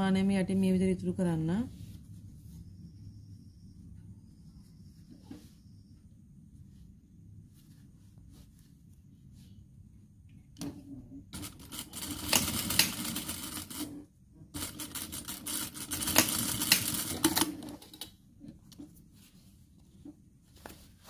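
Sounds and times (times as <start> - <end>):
sewing machine needle clatter: 11.4 - 13.9, 14.6 - 18.1.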